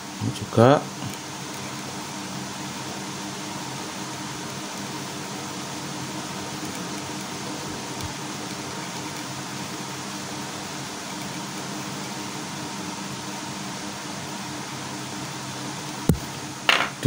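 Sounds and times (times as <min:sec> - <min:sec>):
faint electrical buzz: 0:00.0 - 0:17.0
steady hum and hiss: 0:00.0 - 0:17.0.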